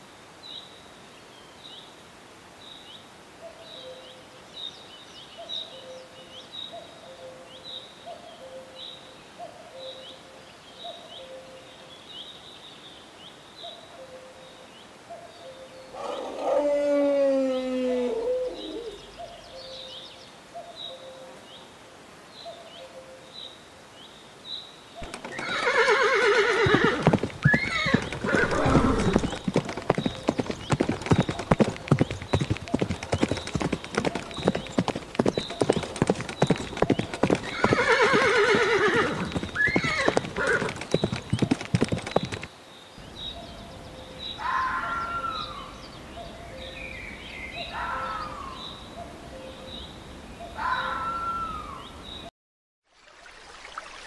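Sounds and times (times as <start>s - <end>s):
hooves clattering: 25.0s - 42.5s
horses whinnying: 25.0s - 42.5s.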